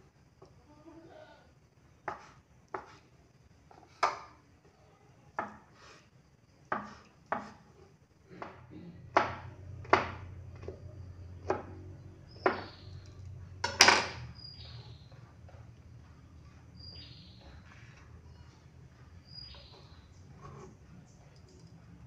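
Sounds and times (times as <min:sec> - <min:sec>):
knife chopping on wooden board: 0:02.1 - 0:03.0, 0:06.7 - 0:07.6, 0:08.4 - 0:10.8, 0:11.4 - 0:11.8, 0:12.4 - 0:12.8.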